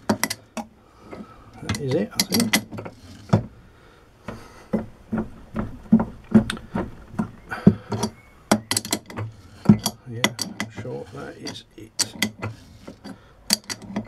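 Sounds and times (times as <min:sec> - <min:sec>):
metallic clicks and knocks: 0:00.0 - 0:03.5, 0:04.7 - 0:14.0.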